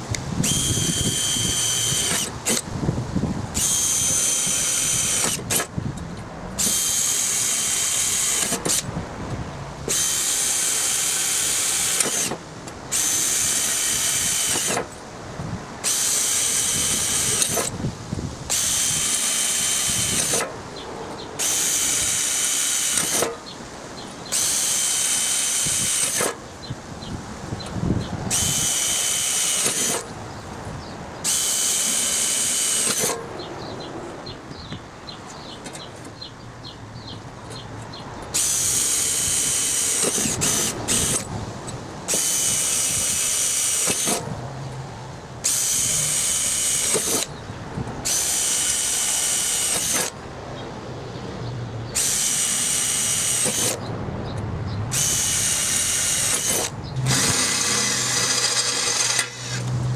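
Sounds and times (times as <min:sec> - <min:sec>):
cordless drill boring through steel: 0:00.4 - 0:02.7, 0:03.6 - 0:05.7, 0:06.6 - 0:08.9, 0:09.9 - 0:14.9, 0:15.8 - 0:17.7, 0:18.5 - 0:20.5, 0:21.4 - 0:23.4, 0:24.3 - 0:26.4, 0:28.3 - 0:30.0, 0:31.2 - 0:33.2, 0:38.3 - 0:41.2, 0:42.1 - 0:44.2, 0:45.4 - 0:47.3, 0:48.0 - 0:50.2, 0:52.0 - 0:53.8, 0:54.9 - 0:59.7.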